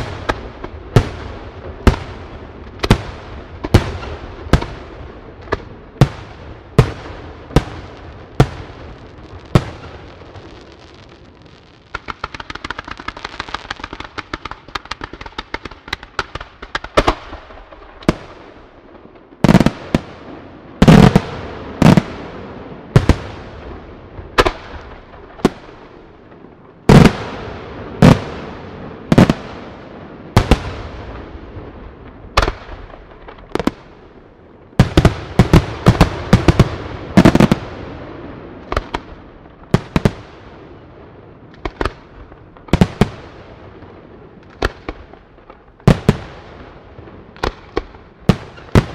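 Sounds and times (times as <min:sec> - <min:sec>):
rapid crackling pops: 0:09.6 - 0:18.1.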